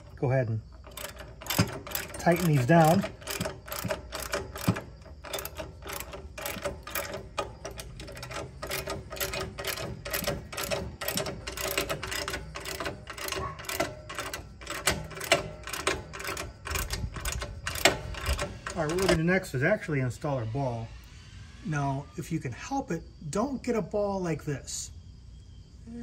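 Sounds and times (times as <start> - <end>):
socket ratchet clicking: 0.8 - 19.2.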